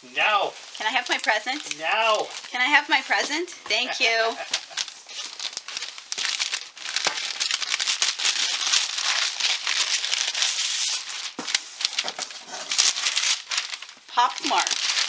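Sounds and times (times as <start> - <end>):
wrapping paper tearing: 0.2 - 15.0
paper crumpling and rustling: 0.5 - 15.0.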